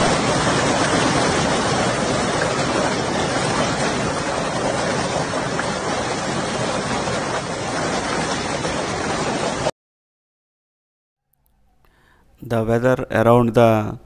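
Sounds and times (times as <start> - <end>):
hail and heavy rain: 0.0 - 9.7
strong wind: 0.0 - 9.7.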